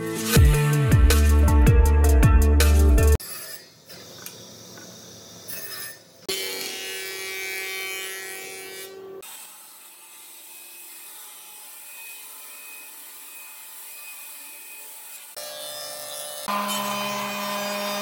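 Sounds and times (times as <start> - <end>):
bandsaw running: 15.2 - 18.0.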